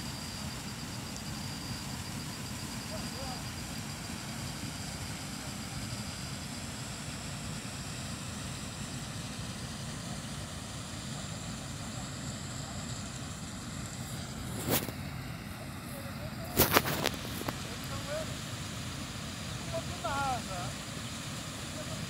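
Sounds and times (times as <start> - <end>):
faint high steady tone: 0.0 - 14.4.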